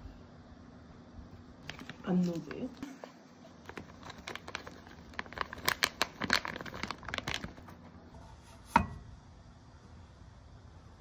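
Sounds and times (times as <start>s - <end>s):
plastic pouch crinkling: 1.6s - 2.6s, 3.6s - 7.9s.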